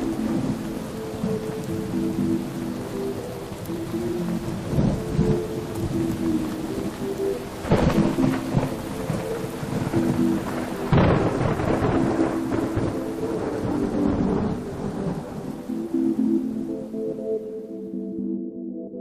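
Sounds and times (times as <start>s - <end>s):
steady rain: 0.0s - 18.0s
music of long held notes: 0.0s - 19.0s
thunder crashes: 7.6s - 14.6s.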